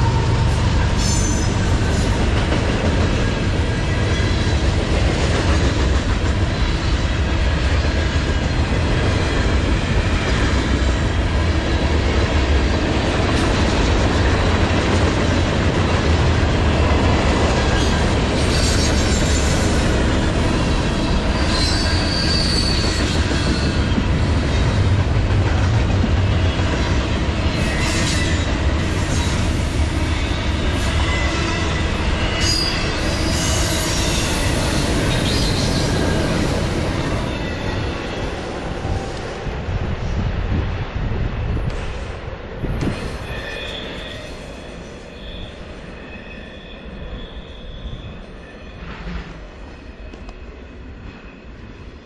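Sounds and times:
train wheels rumbling on rail: 0.0s - 52.0s
high wheel squeals: 21.2s - 23.8s, 30.2s - 38.0s, 43.0s - 48.9s.

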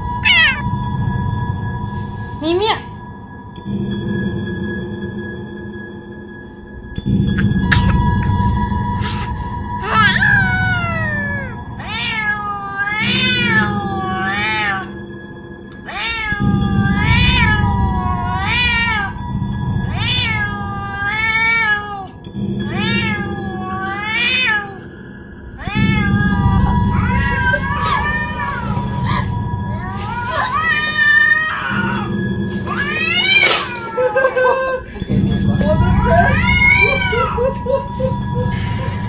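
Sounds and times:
background music: 0.0s - 39.0s
cat meowing: 0.2s - 0.7s, 9.8s - 14.9s, 15.7s - 19.2s, 19.9s - 24.8s, 25.6s - 29.0s, 29.8s - 34.1s.

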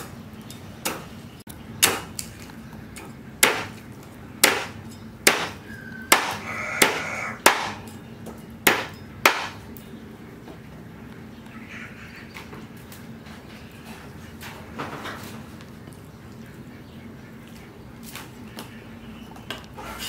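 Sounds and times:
cleaver chopping fish on wood: 1.8s - 2.2s, 3.4s - 3.8s, 4.4s - 7.9s, 8.7s - 9.6s.

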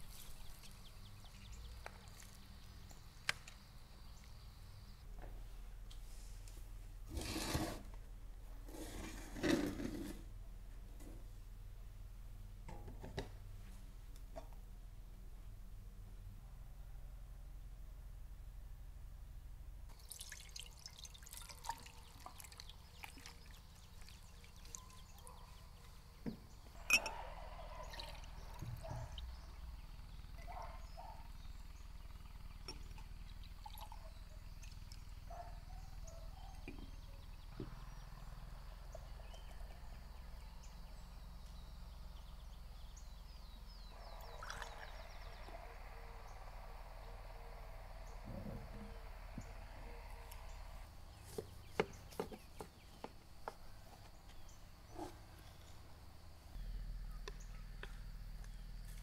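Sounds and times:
liquid pouring and dripping: 19.9s - 25.2s, 32.8s - 34.0s, 44.2s - 44.9s.

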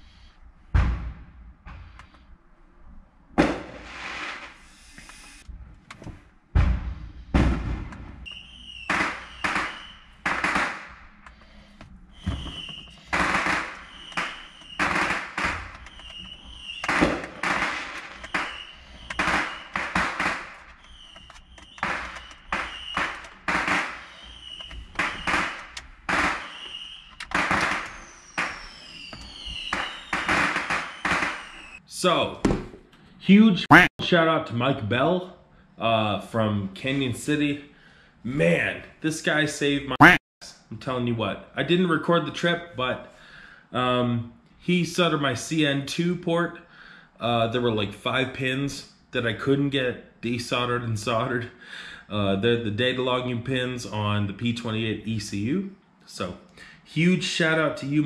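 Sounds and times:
fireworks bangs and crackles: 3.4s - 4.6s, 6.6s - 11.1s, 12.2s - 31.8s
firework whistles: 3.6s - 5.4s, 8.2s - 11.2s, 12.1s - 31.8s.

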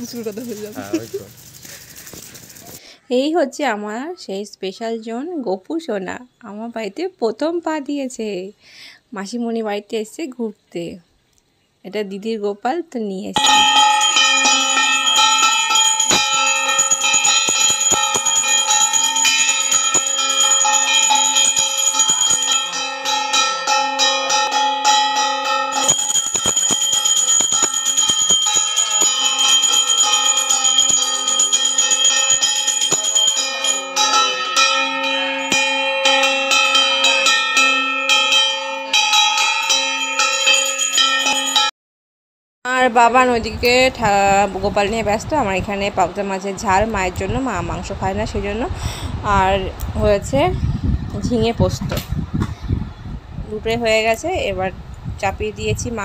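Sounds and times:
hand gong beaten rapidly: 13.4s - 41.7s.

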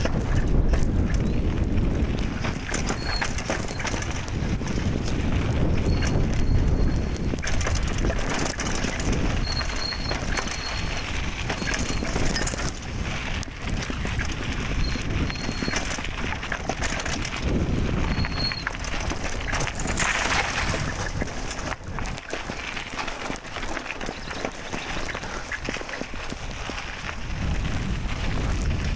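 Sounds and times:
bike rattling: 0.0s - 28.9s
tyre rolling on dirt: 0.0s - 28.9s
high-pitched squeaks: 2.6s - 4.0s, 5.8s - 7.3s, 9.3s - 12.6s, 14.8s - 15.9s, 18.0s - 21.0s.

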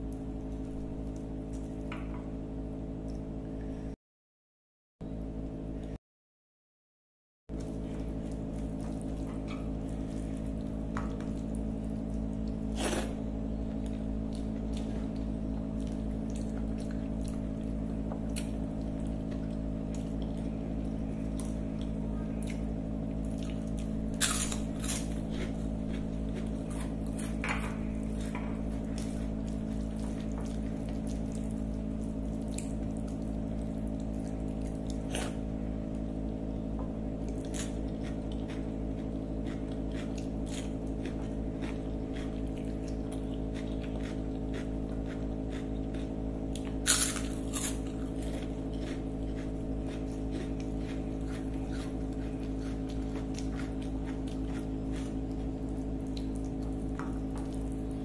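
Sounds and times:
steady low hum: 0.0s - 4.0s, 7.5s - 58.0s
crunch of biting crisp snack: 23.5s - 27.4s, 43.5s - 55.4s.

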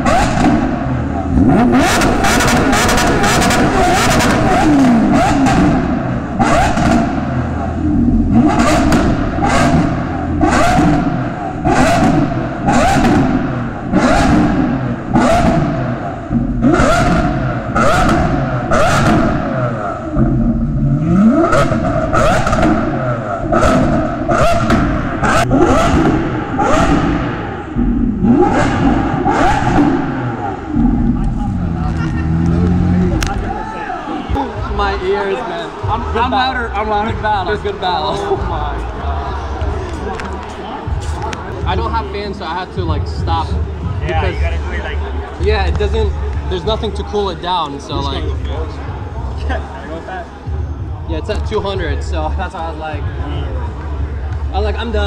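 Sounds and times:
motorcycle engine revving: 0.0s - 33.6s.

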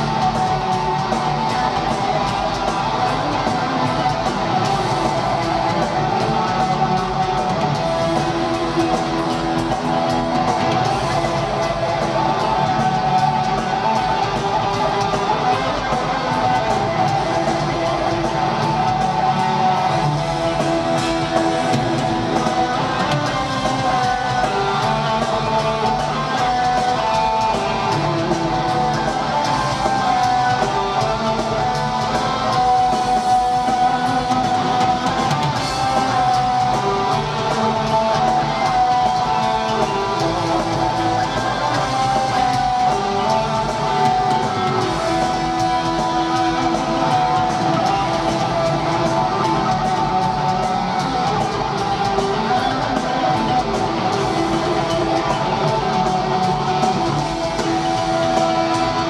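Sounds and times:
electric guitar lead lines: 0.0s - 59.0s
live heavy metal band: 0.0s - 59.0s.

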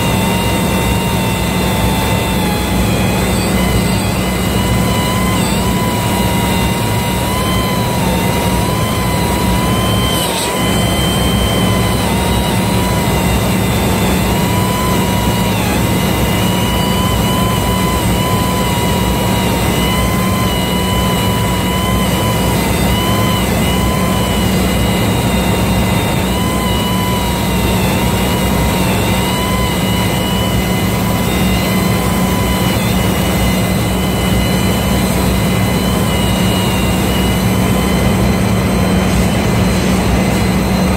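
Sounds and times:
machine hum: 0.0s - 40.9s
wavering whines: 0.0s - 40.9s.

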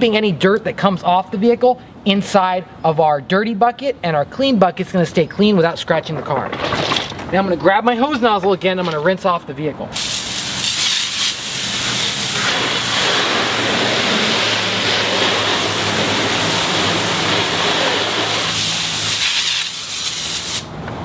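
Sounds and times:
hose nozzle spraying water: 10.0s - 20.7s.

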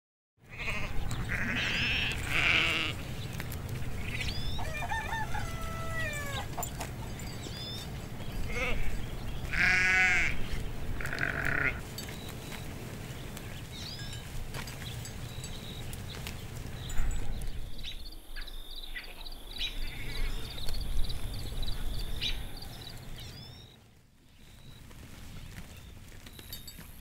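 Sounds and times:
sheep bleating: 0.4s - 3.0s, 8.4s - 11.8s.

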